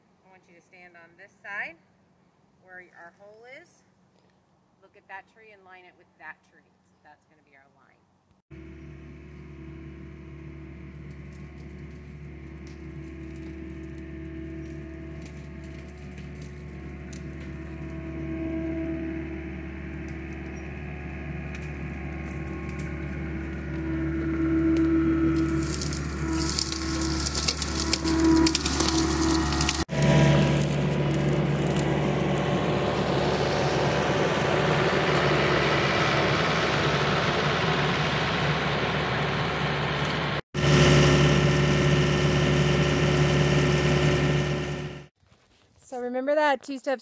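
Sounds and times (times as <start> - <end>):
track loader engine running: 8.5 - 45.1
auger crackling and crunching: 8.6 - 46.0.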